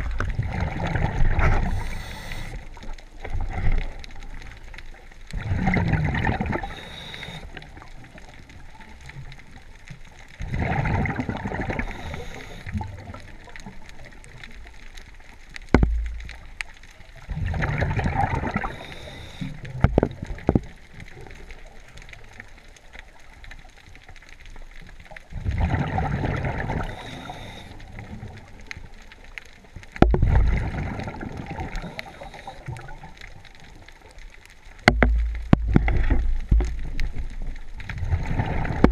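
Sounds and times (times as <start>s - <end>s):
underwater breath bubbles: 0.0s - 4.0s, 5.3s - 8.2s, 10.4s - 13.4s, 17.3s - 20.5s, 25.3s - 28.4s, 30.0s - 33.2s
dull low knocks: 15.7s - 16.2s.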